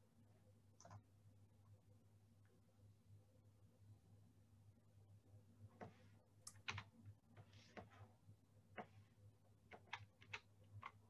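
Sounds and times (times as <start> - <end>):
low steady hum: 0.0 - 11.0
computer keyboard tapping: 6.5 - 8.0, 9.7 - 11.0.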